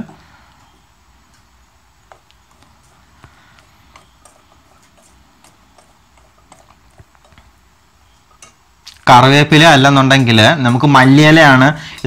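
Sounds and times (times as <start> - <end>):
spatula clicking and scraping pan: 2.1 - 8.6.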